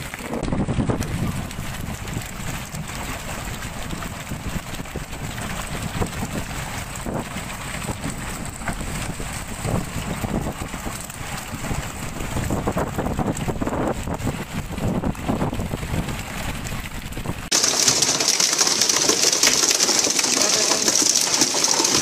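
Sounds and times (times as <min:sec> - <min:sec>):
wind buffeting microphone: 0:00.0 - 0:17.6.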